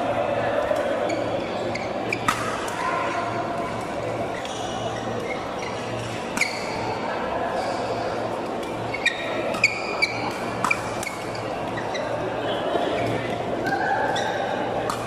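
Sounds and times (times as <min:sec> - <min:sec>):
sports hall background: 0:00.0 - 0:15.0
rackets hitting shuttlecock: 0:02.1 - 0:02.9, 0:09.4 - 0:11.4, 0:14.8 - 0:15.0.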